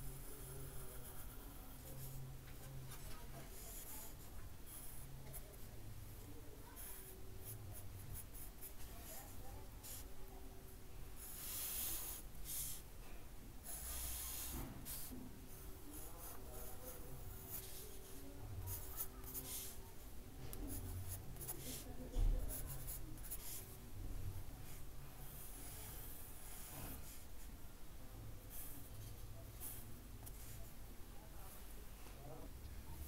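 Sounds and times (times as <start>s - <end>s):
pencil scratching on paper: 0.1s - 5.7s, 6.7s - 10.1s, 11.2s - 12.8s, 13.6s - 23.8s, 24.6s - 27.4s.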